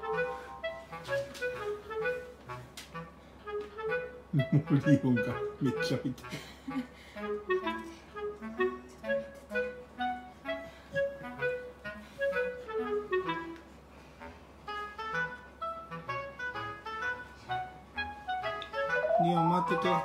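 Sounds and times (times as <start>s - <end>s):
background music melody: 0.0s - 6.2s, 7.2s - 13.8s, 14.7s - 20.0s.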